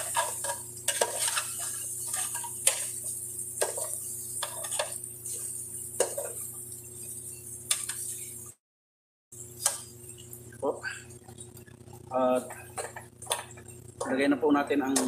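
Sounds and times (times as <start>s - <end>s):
metal spoon scraping a pot: 0.0s - 3.0s, 3.6s - 6.4s.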